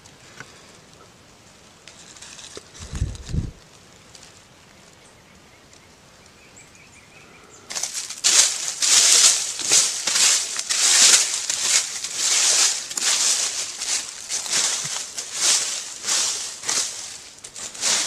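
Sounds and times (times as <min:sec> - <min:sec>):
dry leaves swept by hand: 0:01.9 - 0:04.5, 0:07.7 - 0:18.0.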